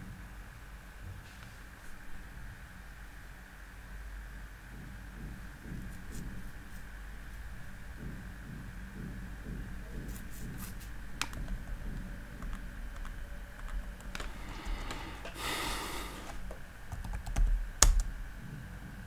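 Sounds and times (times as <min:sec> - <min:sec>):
typing on keyboard: 0:12.4 - 0:14.9, 0:16.9 - 0:18.1.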